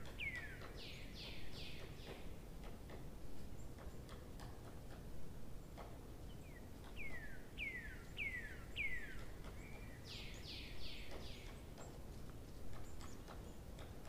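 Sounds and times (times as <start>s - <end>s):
faint low background noise: 0.0s - 14.0s
bird whistled calls: 7.0s - 11.5s.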